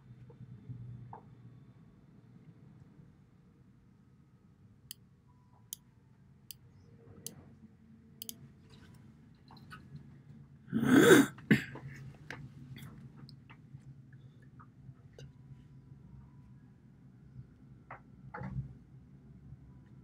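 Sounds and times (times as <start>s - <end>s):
person coughing: 10.7s - 11.9s.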